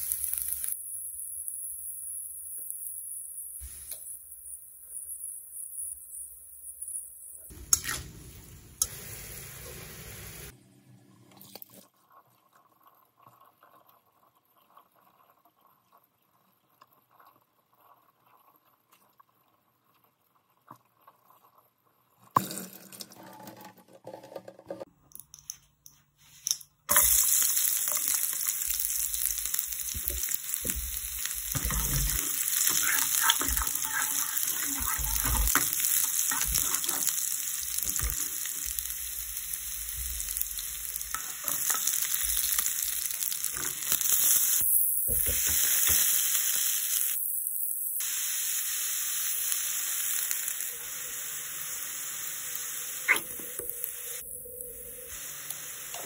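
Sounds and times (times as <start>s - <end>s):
garlic sizzling in hot oil: 0.0s - 10.5s, 26.9s - 56.0s.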